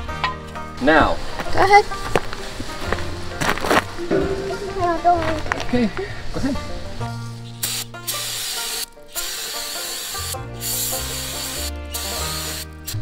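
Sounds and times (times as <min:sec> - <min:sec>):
background music: 0:00.0 - 0:13.0
aerosol spray can hissing: 0:07.6 - 0:13.0.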